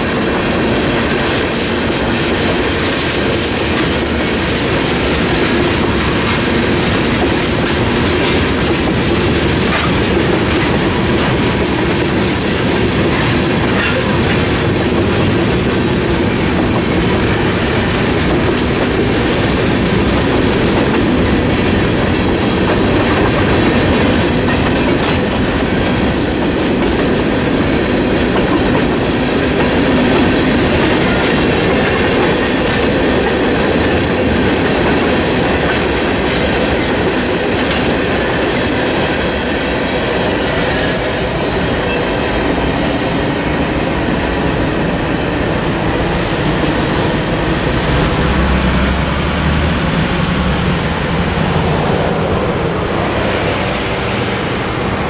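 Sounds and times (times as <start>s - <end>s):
freight train rumbling past: 0.0s - 55.0s
wheels clacking over rail: 0.0s - 55.0s.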